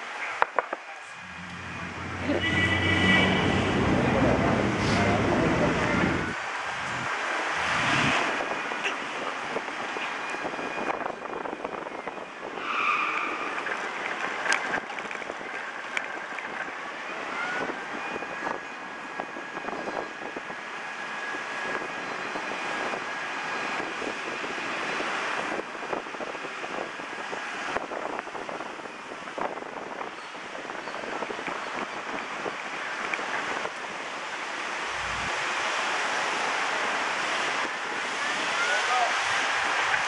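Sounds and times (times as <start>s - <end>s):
passing cars roar: 0.0s - 40.0s
short high tone: 1.2s - 6.3s.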